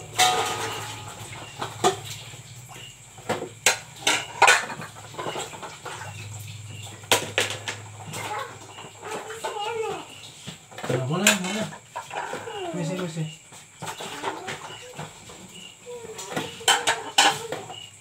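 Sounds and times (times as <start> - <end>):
sharp knocks of plates: 0.0 - 2.1, 16.2 - 17.8
plates clinking while washed: 0.0 - 18.0.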